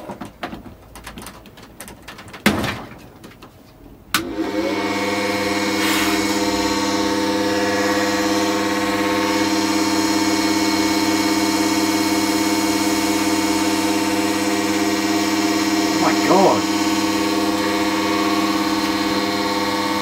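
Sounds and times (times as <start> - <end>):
loud electrical hum of fan motor: 4.1 - 20.0.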